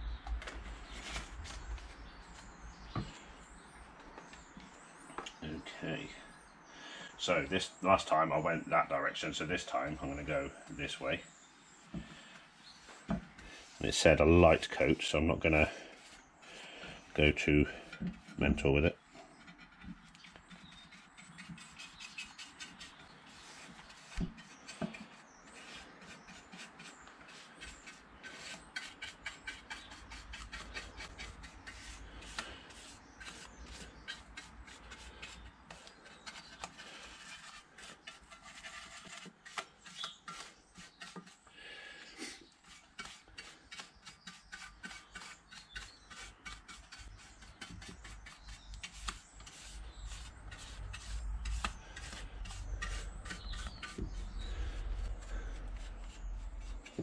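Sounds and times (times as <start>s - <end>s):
paintbrush stroking on metal: 42.4s - 57.0s.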